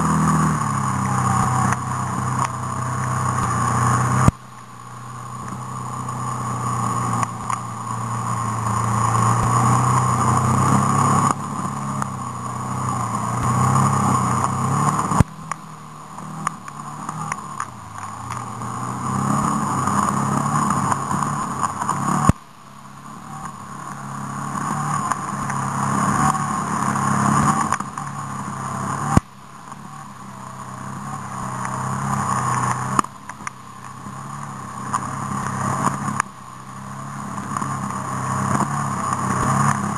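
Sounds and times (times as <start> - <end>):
off-road engine revving: 0.0 - 39.9.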